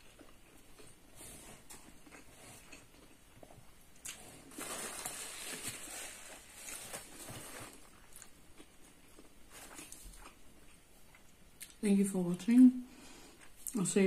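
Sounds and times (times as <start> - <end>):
paper napkin crinkling: 4.5 - 8.0.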